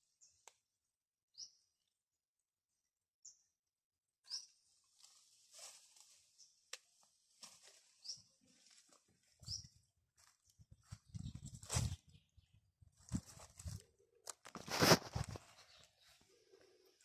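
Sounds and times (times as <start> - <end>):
branches rustling: 4.8 - 9.6, 13.0 - 16.3.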